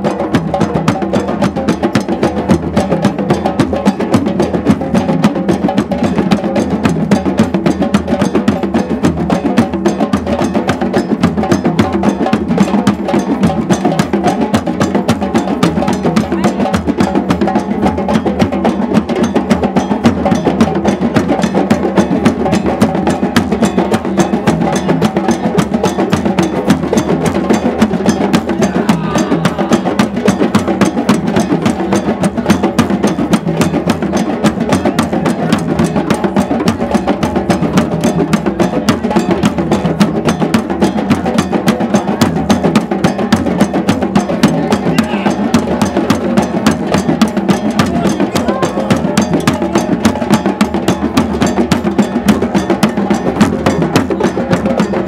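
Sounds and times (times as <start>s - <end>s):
hand drums playing fast rhythm: 0.0s - 55.0s
faint crowd voices: 27.9s - 30.9s, 44.4s - 51.2s.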